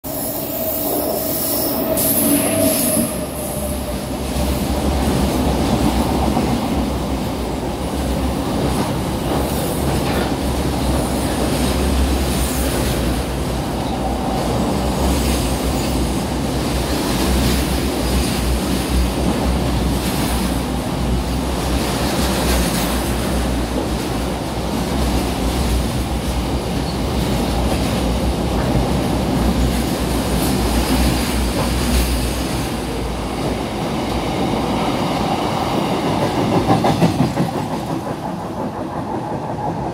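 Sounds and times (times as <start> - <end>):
freight train rumbling past: 0.0 - 39.9.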